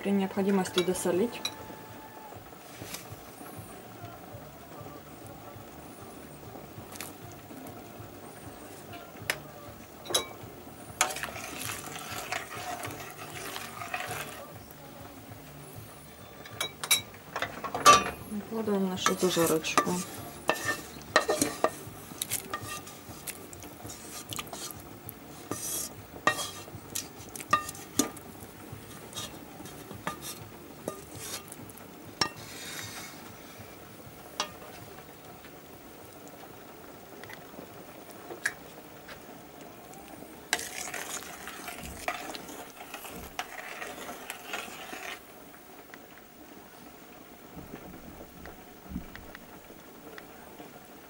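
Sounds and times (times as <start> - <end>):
utensil scraping frying pan: 2.5 - 3.5, 10.0 - 14.8, 16.2 - 35.1, 40.5 - 45.3
stirring in pot: 6.3 - 14.8, 16.4 - 35.2, 40.1 - 45.3.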